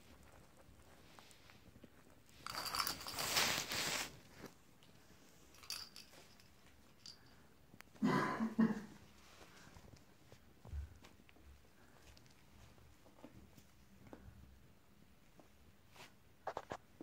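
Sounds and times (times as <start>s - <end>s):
puppies scuffling with toy balls: 1.6s - 4.6s.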